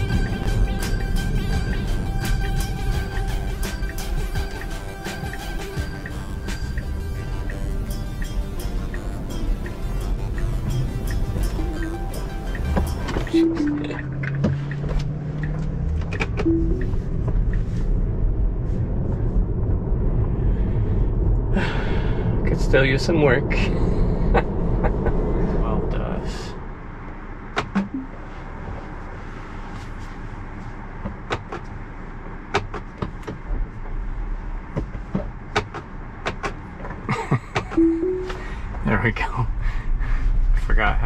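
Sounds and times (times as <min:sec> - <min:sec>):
background music: 0:00.0 - 0:14.3, 0:16.5 - 0:17.1, 0:37.8 - 0:38.7
tyre and road rumble: 0:00.0 - 0:37.7
low steady car interior hum: 0:00.0 - 0:41.0.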